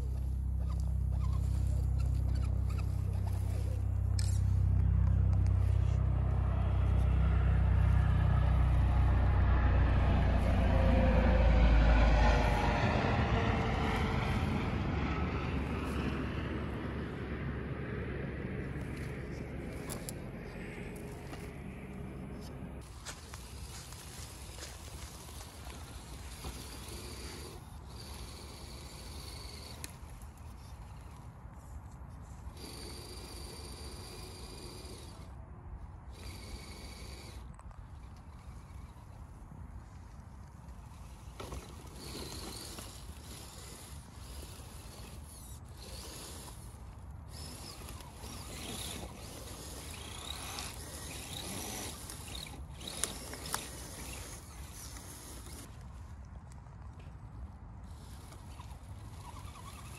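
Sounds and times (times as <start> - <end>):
electric motor whining: 0.0 - 56.0, 57.4 - 59.9
tyres crunching through dry leaves: 18.7 - 35.2, 36.1 - 59.9
dry leaves rustling: 22.8 - 29.7.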